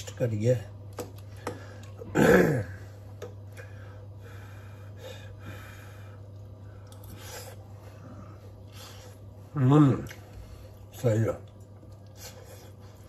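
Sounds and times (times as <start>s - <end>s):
steady low hum: 0.0s - 13.0s
soft breaths: 3.5s - 9.5s.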